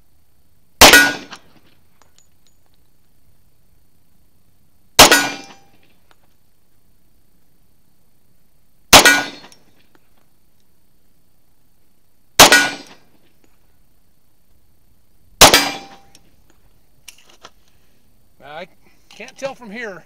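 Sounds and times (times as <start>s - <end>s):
pistol shots: 0.8s - 1.5s, 5.0s - 5.7s, 8.9s - 9.6s, 12.4s - 13.0s, 15.4s - 16.2s.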